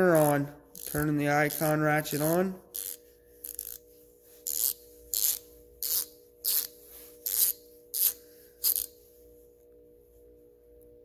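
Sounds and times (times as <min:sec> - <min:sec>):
ratchet clicking: 0:00.1 - 0:03.8, 0:04.4 - 0:09.0.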